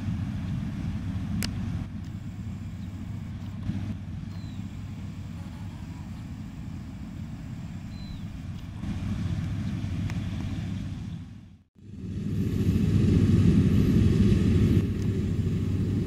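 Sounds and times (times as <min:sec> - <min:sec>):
combine harvester droning: 0:00.0 - 0:16.0
high chirps: 0:04.3 - 0:08.4.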